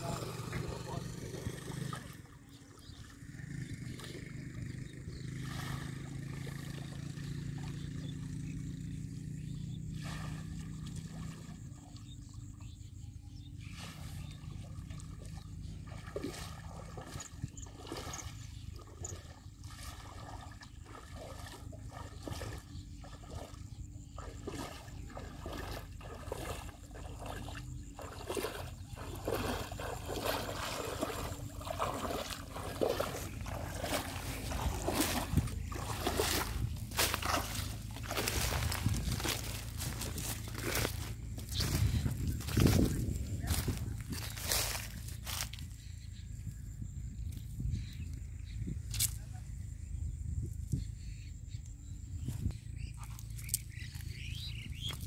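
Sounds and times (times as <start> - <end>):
low steady hum: 0.0 - 44.2
water splashing and dripping: 14.6 - 40.9.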